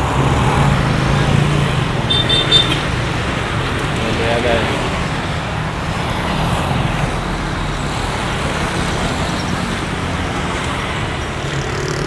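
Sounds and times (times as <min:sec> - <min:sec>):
motorcycles driving past: 0:08.3 - 0:12.0.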